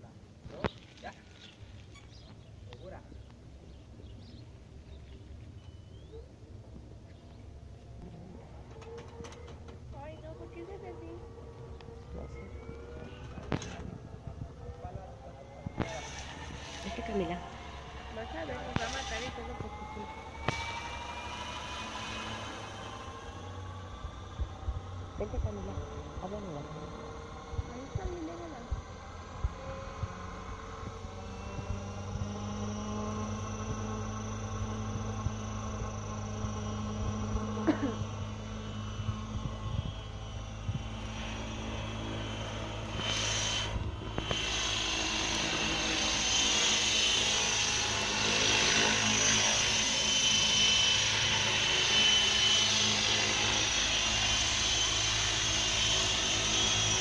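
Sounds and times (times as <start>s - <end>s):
helicopter rotor hum: 0.0s - 57.0s
high motor whine: 0.0s - 57.0s.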